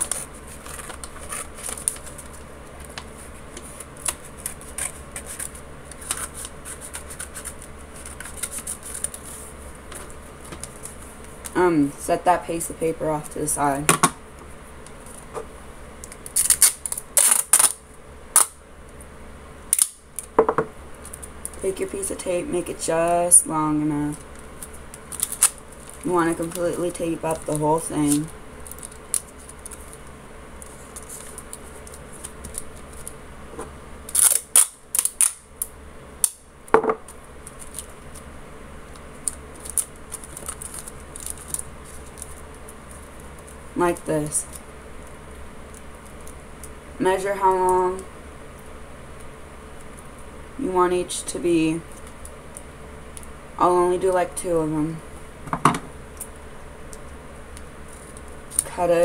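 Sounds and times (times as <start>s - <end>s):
duct tape ripping: 0.0s - 3.0s, 3.6s - 9.3s, 16.0s - 18.6s, 19.7s - 20.4s, 24.6s - 26.6s, 27.3s - 30.0s, 34.1s - 36.4s, 38.9s - 42.4s
paper rustling and crinkling: 0.0s - 11.6s, 27.3s - 33.2s, 38.9s - 43.6s, 57.9s - 58.7s.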